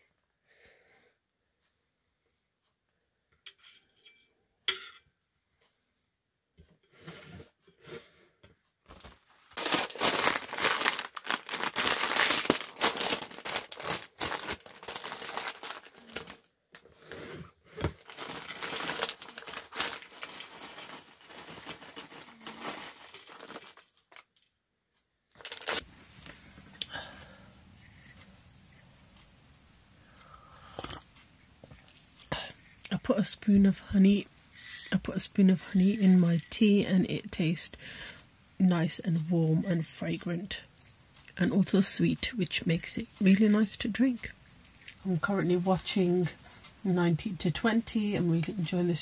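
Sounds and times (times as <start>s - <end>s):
crisp packet crinkling: 8.9s - 16.5s, 18.0s - 24.5s, 25.3s - 25.9s.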